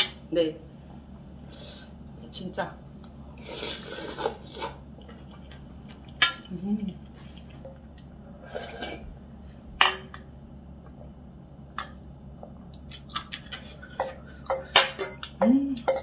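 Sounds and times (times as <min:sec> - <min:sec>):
soft chewing: 0:03.0 - 0:06.2, 0:06.8 - 0:08.8, 0:12.4 - 0:14.4
spoon clinking on metal bowl: 0:14.0 - 0:16.0.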